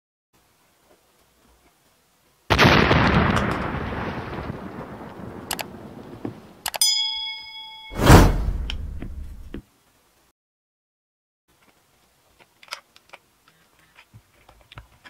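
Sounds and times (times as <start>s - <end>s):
ringing bell chime: 6.8s - 8.0s
loud boom: 8.0s - 9.6s.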